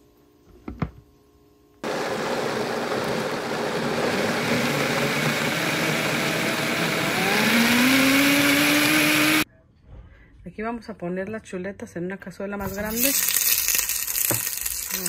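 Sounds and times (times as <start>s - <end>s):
blender running: 1.8s - 9.4s.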